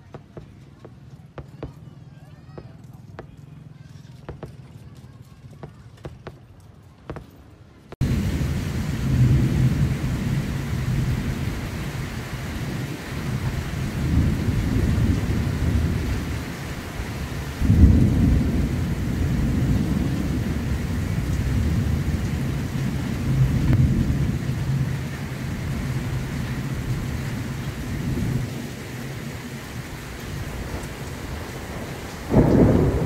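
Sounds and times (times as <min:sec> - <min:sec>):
rain hiss: 0:08.0 - 0:33.0
thunder rumbling: 0:08.0 - 0:33.0.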